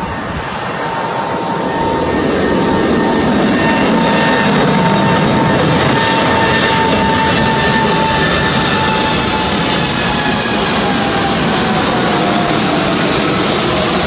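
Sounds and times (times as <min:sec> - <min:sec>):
jet engine roar with whine: 0:00.0 - 0:14.0.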